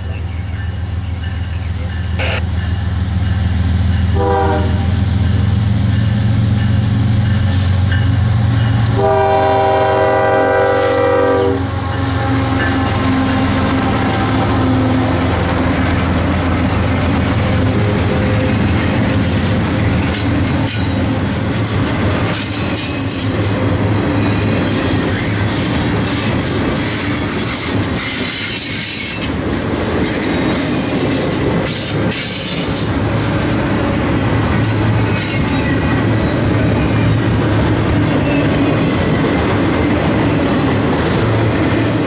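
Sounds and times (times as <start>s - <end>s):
diesel locomotive engine drone: 0.0s - 42.0s
steel wheels clattering on rails: 16.3s - 42.0s.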